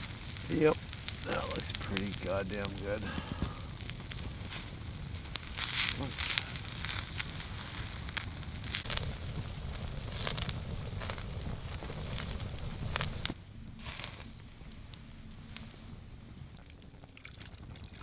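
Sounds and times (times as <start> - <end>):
campfire crackling: 0.0 - 18.0
sharp pops of fire: 0.0 - 18.0.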